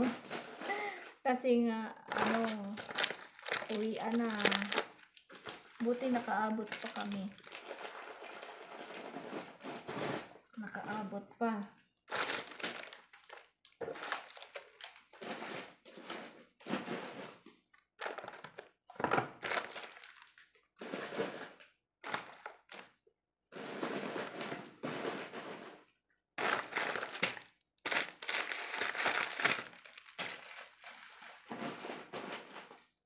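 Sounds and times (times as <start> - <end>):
snack wrappers crinkling: 2.1 - 9.0, 12.1 - 15.8, 18.0 - 20.6, 21.5 - 23.0, 26.4 - 31.6.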